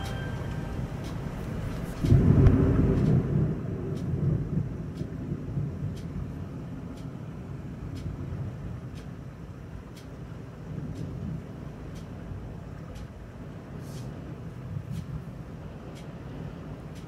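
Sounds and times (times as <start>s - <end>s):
deep rumble: 0.0s - 6.7s
faint ticks: 7.9s - 8.2s, 9.9s - 10.2s, 10.8s - 13.2s, 14.8s - 17.0s.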